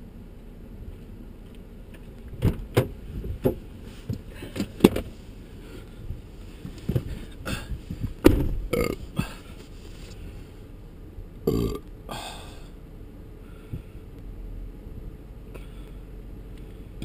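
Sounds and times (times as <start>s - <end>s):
knocks and rustles: 1.9s - 5.2s, 6.5s - 8.7s
low throaty vocal sound: 8.6s - 9.6s, 11.5s - 12.6s.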